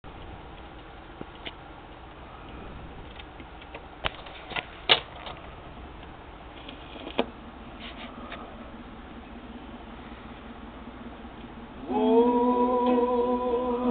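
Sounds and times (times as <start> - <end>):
low background hum: 0.0 - 13.9
record changer clicks and clunks: 0.2 - 5.4.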